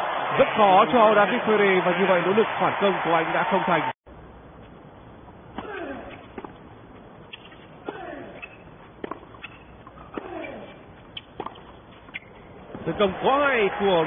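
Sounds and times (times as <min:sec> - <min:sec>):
tennis ball hit by racquets: 0:05.5 - 0:06.6, 0:07.3 - 0:12.9.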